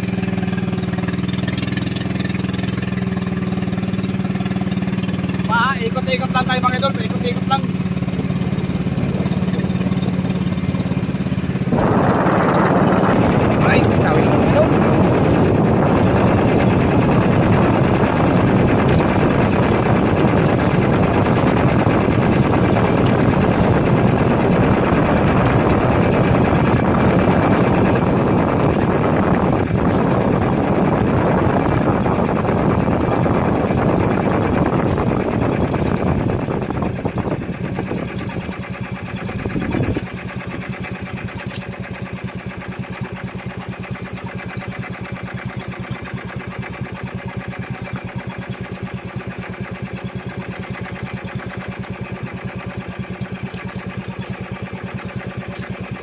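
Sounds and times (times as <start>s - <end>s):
boat engine running: 0.0s - 56.0s.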